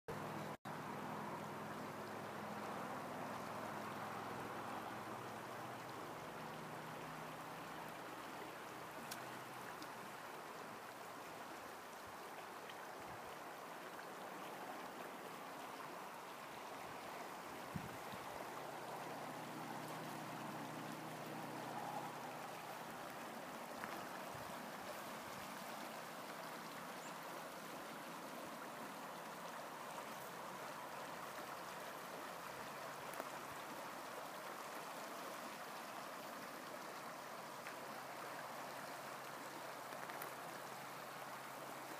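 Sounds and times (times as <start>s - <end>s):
river rushing over riffles: 0.7s - 41.9s
faint clicks: 9.0s - 10.0s, 39.8s - 40.4s.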